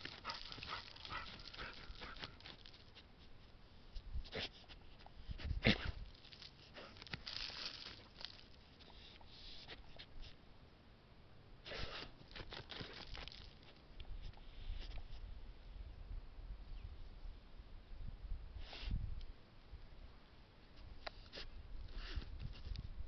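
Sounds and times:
dirt scuffs: 0.0 - 3.0, 5.7 - 8.6, 11.7 - 13.8
dog snuffling in soil: 0.0 - 10.4, 11.6 - 15.3, 18.6 - 19.0, 20.8 - 22.8.

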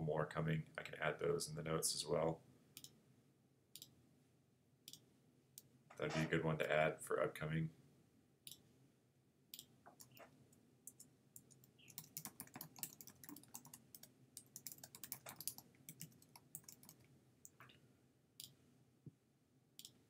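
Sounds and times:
faint keyboard typing: 9.5 - 17.7.

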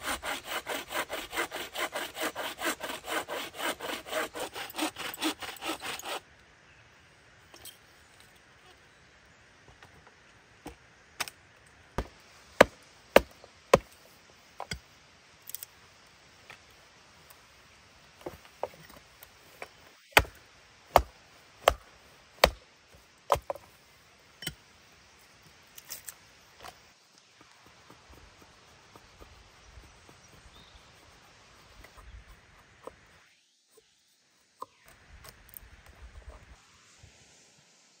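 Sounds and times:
wood being chopped: 12.0 - 13.9, 20.1 - 21.8, 22.4 - 22.6, 23.3 - 23.6.

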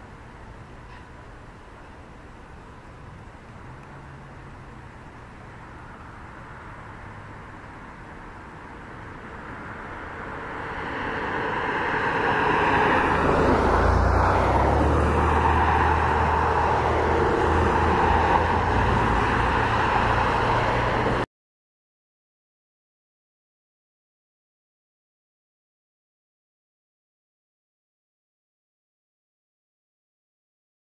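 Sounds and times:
road traffic rushing by: 0.0 - 21.3.

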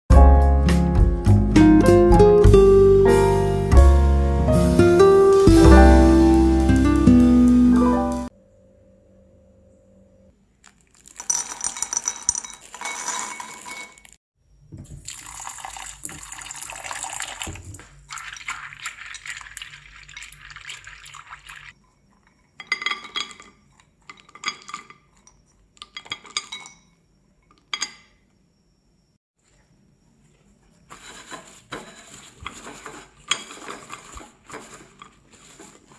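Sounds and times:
water running and splashing: 4.4 - 8.3, 15.0 - 21.8
nuts rattling in a bowl: 10.7 - 14.2.

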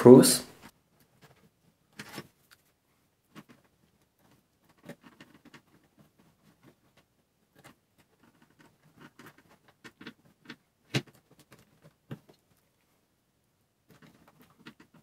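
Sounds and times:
plastic parts clicking and tapping: 3.3 - 12.6, 13.9 - 15.0.

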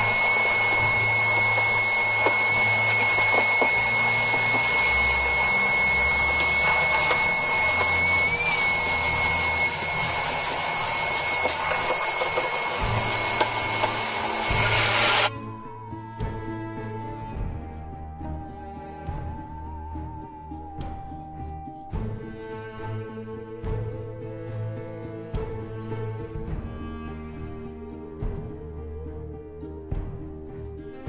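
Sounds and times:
shop vacuum whining: 0.0 - 16.3.

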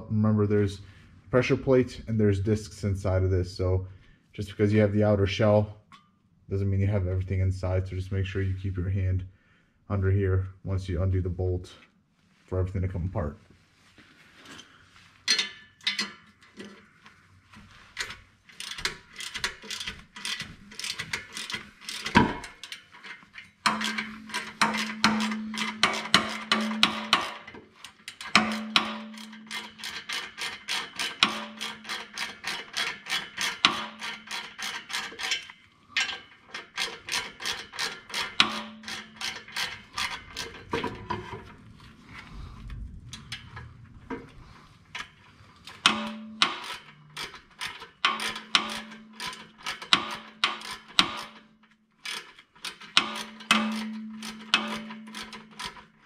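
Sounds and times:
hand ratchet clicking: 18.0 - 40.8, 44.9 - 56.0.

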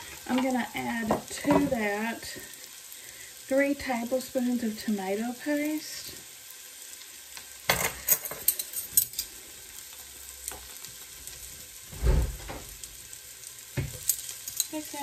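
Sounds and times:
onions sizzling in oil: 0.0 - 15.0
dull thump: 11.9 - 12.7.

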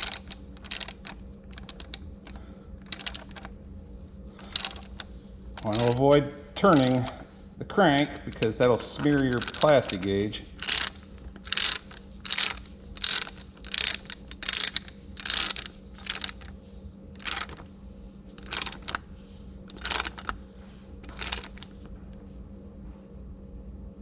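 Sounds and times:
ratchet wrench clicking: 0.0 - 3.5, 4.4 - 5.0, 5.6 - 7.2, 7.9 - 16.5, 17.2 - 17.6, 18.4 - 19.0, 19.7 - 20.4, 21.1 - 21.7.

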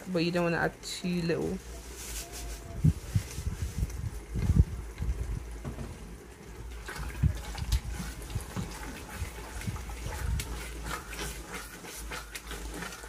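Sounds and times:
wooden spoon stirring thick paste: 6.8 - 13.0.

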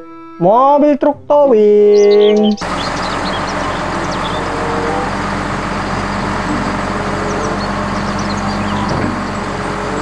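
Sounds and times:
faint birds chirping: 1.9 - 10.0
truck engine idling: 2.6 - 10.0.

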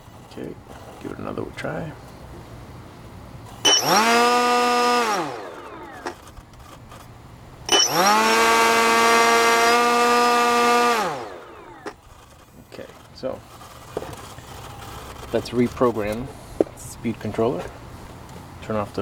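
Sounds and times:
electric motor whining: 3.6 - 6.7, 7.7 - 16.2.

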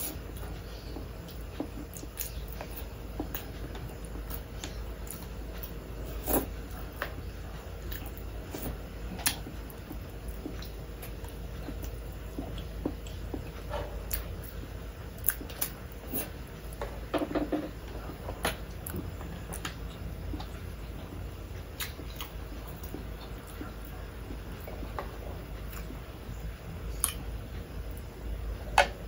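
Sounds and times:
low steady hum: 0.0 - 29.0
chewing and mouth smacking: 7.8 - 14.6, 15.2 - 16.4, 17.9 - 26.0, 26.9 - 27.3.

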